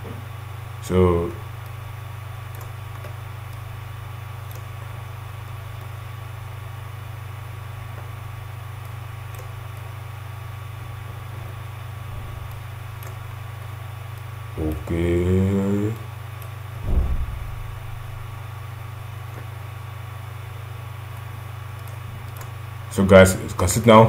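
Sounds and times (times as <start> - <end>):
low background hum: 0.0 - 24.0
faint clicks: 4.4 - 4.7.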